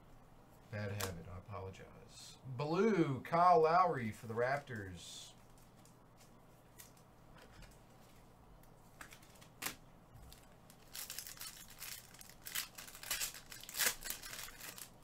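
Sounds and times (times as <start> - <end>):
foil wrapper crinkling and tearing: 9.1 - 15.0.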